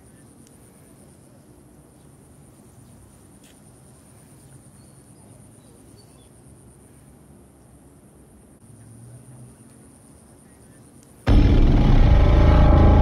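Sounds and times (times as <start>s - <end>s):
insects trilling: 0.0s - 11.5s
low outdoor rumble: 10.3s - 13.0s.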